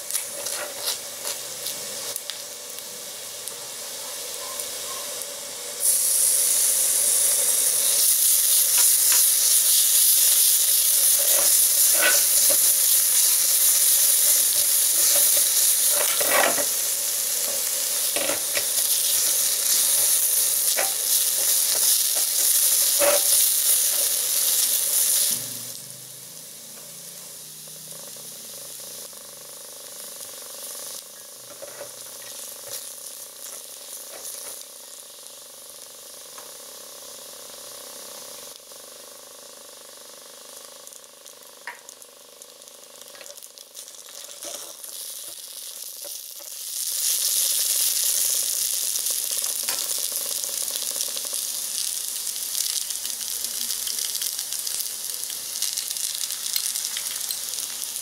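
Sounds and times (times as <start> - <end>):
bacon sizzling in skillet: 0.0 - 58.0.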